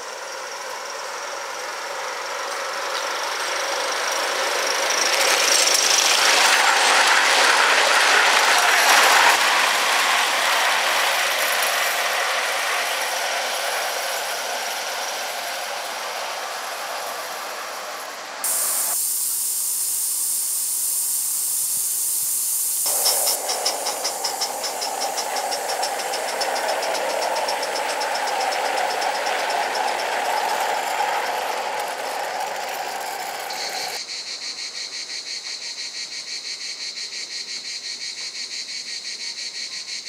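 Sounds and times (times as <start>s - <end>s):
wheels rattling on track: 0.0s - 19.0s, 22.8s - 34.1s
steam hissing: 0.0s - 34.1s
steam locomotive chuffing: 0.0s - 34.1s.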